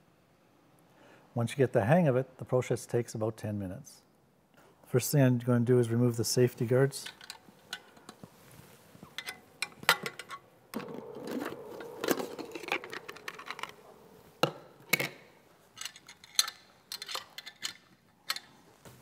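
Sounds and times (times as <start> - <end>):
metal scraping on metal: 8.4 - 17.1
metal clicks and knocks: 15.8 - 18.6.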